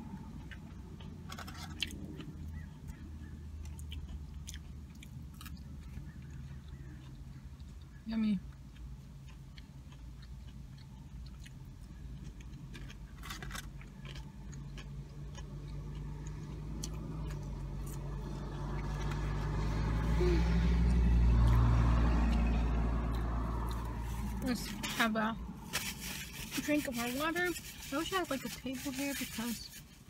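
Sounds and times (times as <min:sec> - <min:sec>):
passing vehicle engine and tyres: 0:14.2 - 0:30.0.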